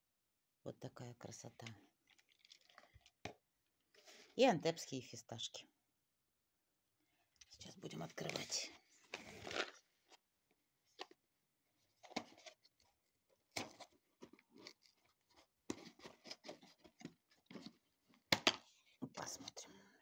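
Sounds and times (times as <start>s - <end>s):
cardboard scrapes and clicks: 12.0s - 17.8s.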